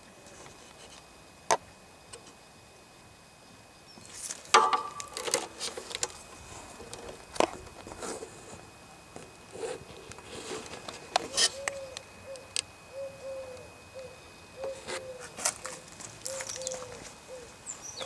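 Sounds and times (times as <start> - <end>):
hand tapping and rustling wiring: 4.0 - 12.7, 14.7 - 17.2.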